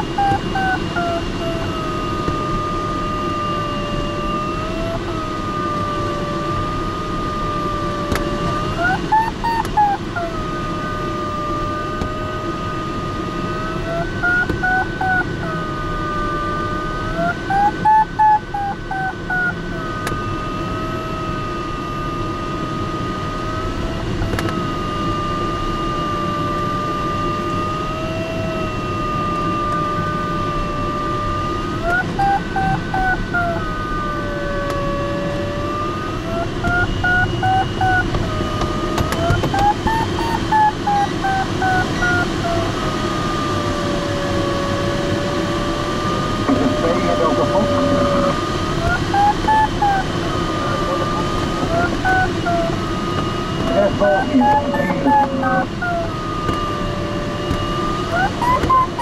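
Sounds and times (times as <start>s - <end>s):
variometer tone and beeps: 8.8s - 9.8s, 39.6s - 41.0s, 46.5s - 52.8s, 53.6s - 56.2s
airflow rushing in cockpit: 42.4s - 59.0s.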